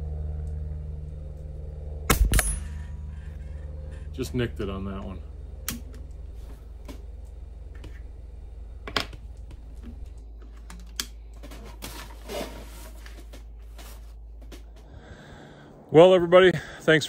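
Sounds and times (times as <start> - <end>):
low steady hum: 0.0 - 17.0
air rifle mechanical clicks: 5.6 - 6.2.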